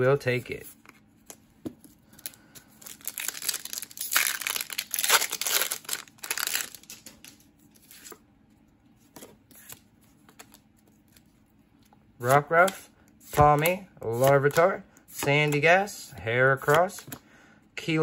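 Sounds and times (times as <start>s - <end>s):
foil pack crinkling: 2.0s - 8.1s.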